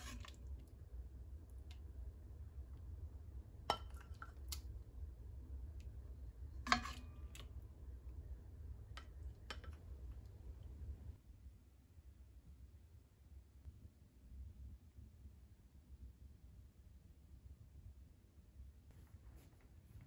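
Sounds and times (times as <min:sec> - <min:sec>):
ladle clinking on pot and bowl: 0:03.7 - 0:04.3, 0:06.7 - 0:07.4.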